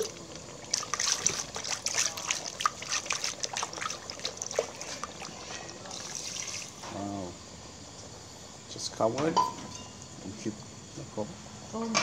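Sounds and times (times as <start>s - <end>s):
liquid pouring and splashing into pot: 0.0s - 6.8s.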